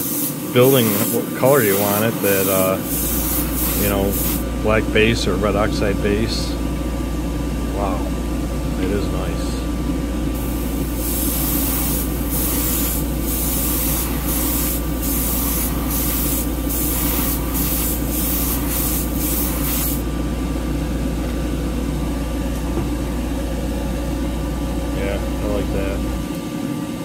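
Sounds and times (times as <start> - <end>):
airbrush spraying hissing bursts: 0.0 - 4.4, 10.4 - 20.0
exhaust fan humming: 0.0 - 27.0.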